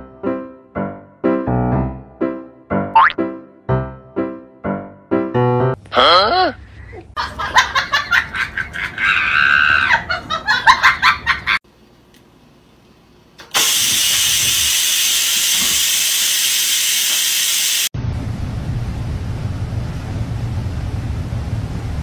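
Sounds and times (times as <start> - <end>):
rice cooker steam hissing: 13.4 - 17.9.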